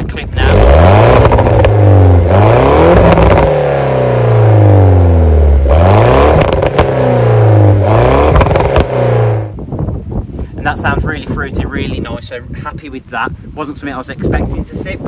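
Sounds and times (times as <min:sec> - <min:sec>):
car engine revving: 0:00.4 - 0:09.6.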